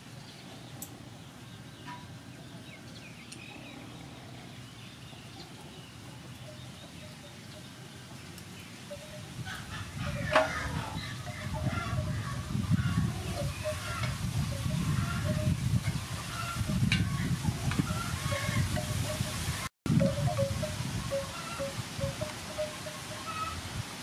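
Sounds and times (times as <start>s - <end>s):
fowl calls: 16.2s - 23.6s
bird chirps: 20.0s - 23.6s.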